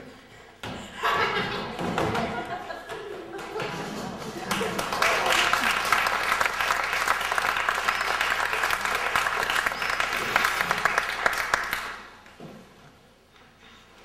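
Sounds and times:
audience applauding: 4.4 - 12.2.

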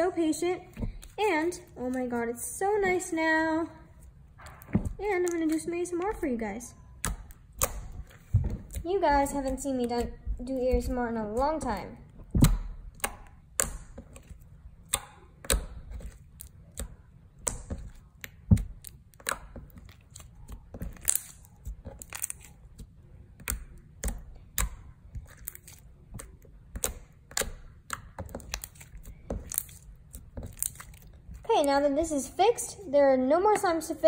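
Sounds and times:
hand squishing slime: 0.1 - 32.6
sharp slime snap: 6.9 - 8.1, 11.6 - 22.8, 23.4 - 31.8
sticky slime clicks and pops: 7.0 - 8.1, 12.3 - 14.0.

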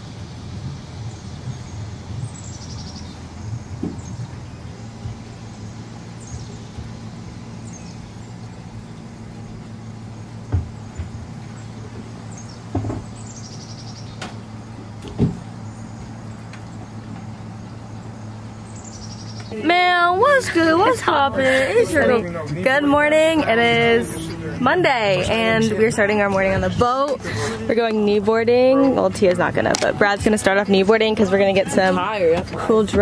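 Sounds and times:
engine humming at low speed: 0.0 - 33.0
dull knocks: 3.5 - 5.3, 10.4 - 13.2, 14.2 - 17.3.

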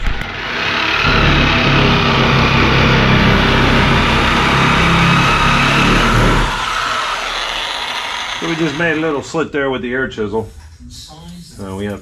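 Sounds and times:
power tool cutting sheet steel: 0.0 - 9.3.

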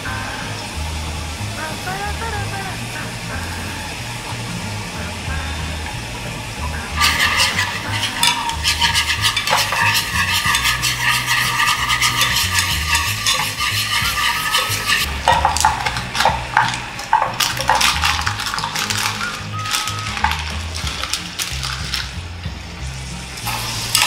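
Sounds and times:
sauce sizzling in butter: 2.7 - 24.0
spatula stirring in pan: 6.9 - 22.2
chicken pieces knocking into pan: 15.1 - 22.2.

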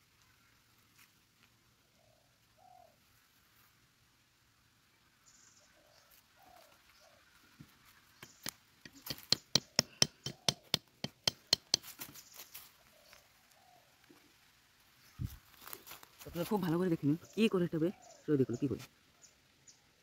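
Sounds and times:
machete tapping on bamboo: 8.2 - 12.2.

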